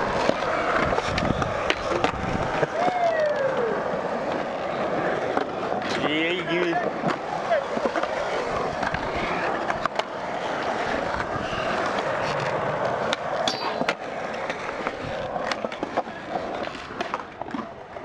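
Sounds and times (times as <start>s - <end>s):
skateboard clacking on ground: 0.0s - 18.0s
skateboard wheels rolling on concrete: 0.0s - 18.0s.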